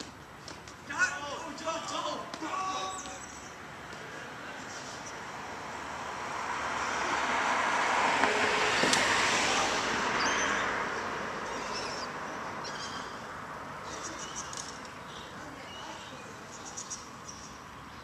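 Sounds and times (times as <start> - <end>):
car driving past: 5.2 - 13.6.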